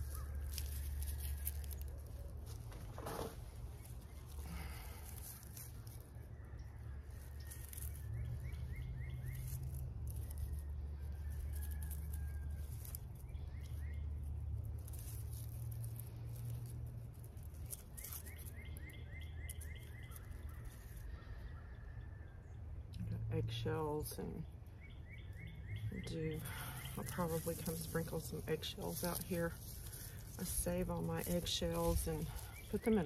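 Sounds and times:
songbird chirping: 0.0 - 16.6, 17.6 - 33.0
hands rustling in soil: 0.0 - 21.9, 23.5 - 33.0.

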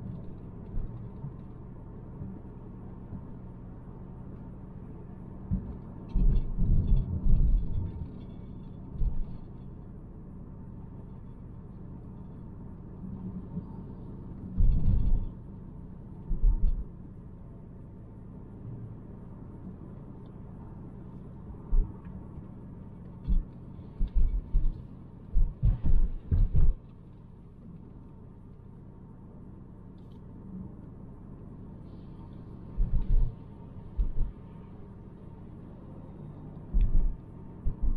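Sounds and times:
road and tyre rumble in car: 0.0 - 37.9
short low thumps: 23.3 - 26.8, 34.0 - 34.4, 36.7 - 37.9.

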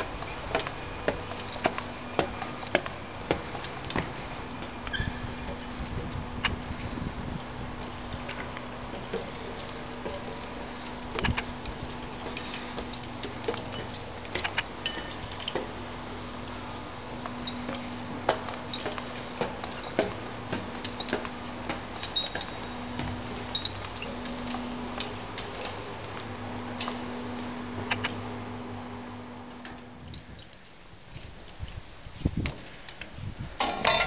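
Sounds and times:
footsteps on steel stairs: 0.0 - 6.9, 7.7 - 15.8, 16.5 - 28.0
steady low hum: 0.0 - 32.4
metallic clinks and knocks: 7.8 - 15.7, 17.4 - 25.9, 33.6 - 34.0.

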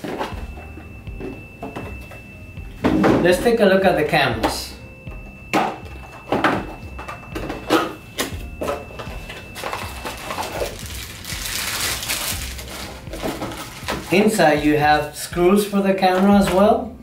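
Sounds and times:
plastic bag crinkling: 9.6 - 14.4.

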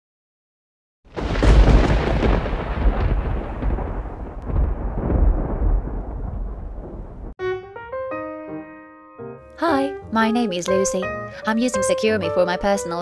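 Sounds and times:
rolling thunder: 1.1 - 7.4.

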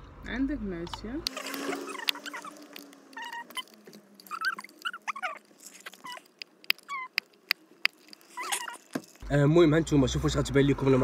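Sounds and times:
pestle squeaking against plastic: 1.3 - 9.2.

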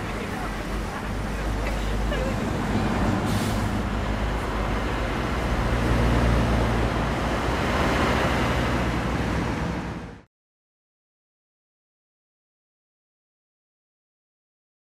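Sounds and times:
road traffic engine hum: 0.0 - 10.3.

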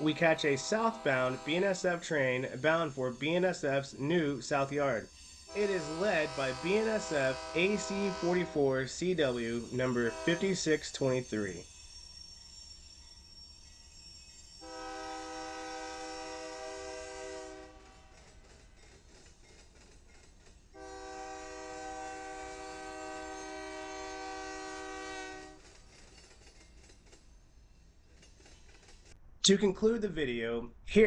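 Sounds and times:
locomotive air horn blasts: 0.0 - 3.2, 5.5 - 10.8, 14.6 - 18.3, 20.8 - 25.6
low rumble of passing train: 0.0 - 31.0
wheels clicking over rails: 17.8 - 20.8, 25.5 - 29.2.

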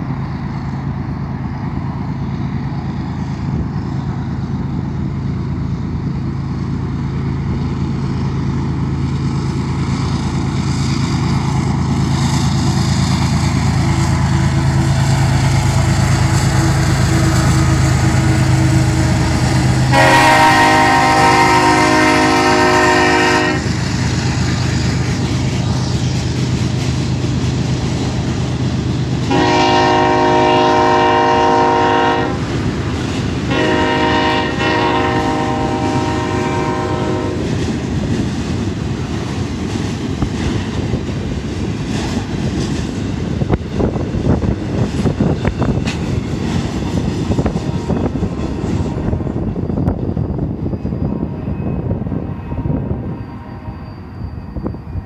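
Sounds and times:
locomotive engine rumbling: 0.0 - 55.0
train air horn blasts: 16.2 - 23.9, 29.2 - 32.5, 33.4 - 37.6.

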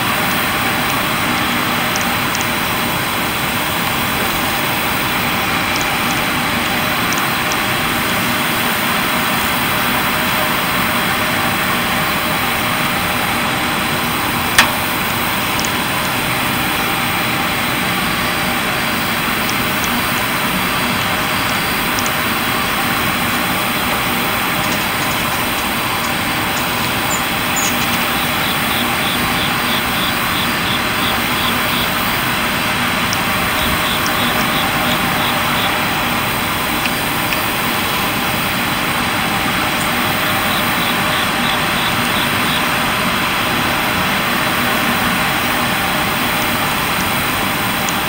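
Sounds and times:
steady rushing noise: 0.0 - 48.0
sharp click: 14.6 - 14.9.

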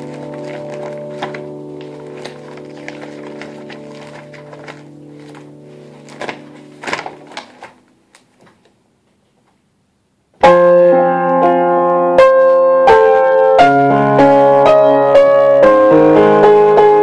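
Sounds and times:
piano chords: 0.0 - 8.2, 10.4 - 17.0
paper rustling and knocks: 0.0 - 9.6.

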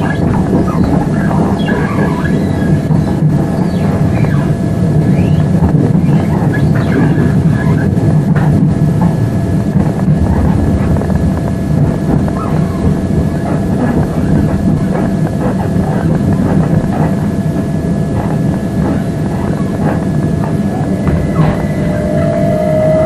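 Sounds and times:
train wheels rumbling on rails: 0.0 - 23.0
electric train motor whine: 20.2 - 23.0.

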